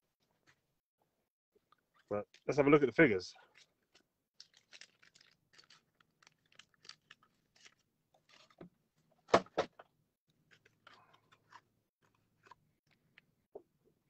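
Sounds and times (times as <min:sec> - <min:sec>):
plastic packaging crinkling: 0:03.5 - 0:08.7.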